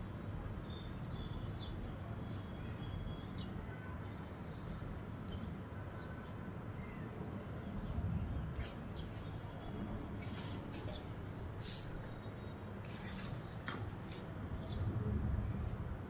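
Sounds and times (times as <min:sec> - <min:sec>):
sparrows chirping: 0:00.6 - 0:14.9
brief high hissy sounds: 0:11.6 - 0:12.1.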